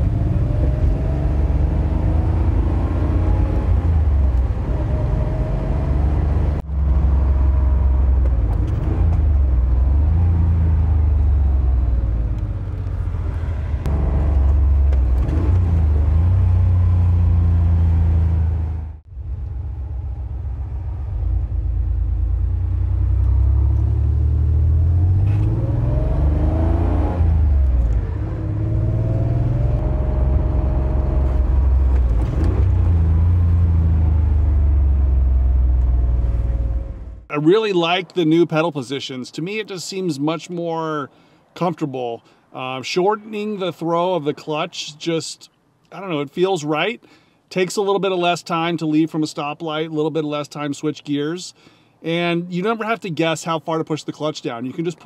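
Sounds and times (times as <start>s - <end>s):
car engine revving: 0.0s - 37.2s.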